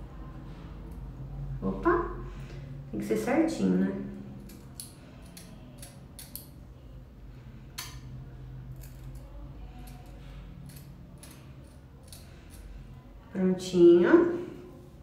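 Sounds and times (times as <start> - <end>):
scissors snipping hair: 4.4 - 6.5, 8.8 - 12.7.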